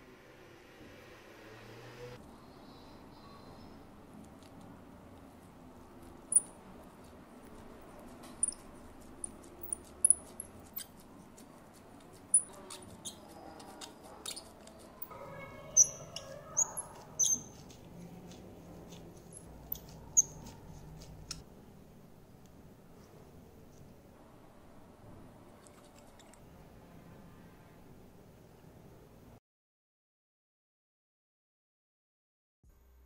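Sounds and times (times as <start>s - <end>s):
small parts clicking: 7.4s - 15.1s
faint high squeaks: 12.3s - 18.2s, 18.8s - 21.4s.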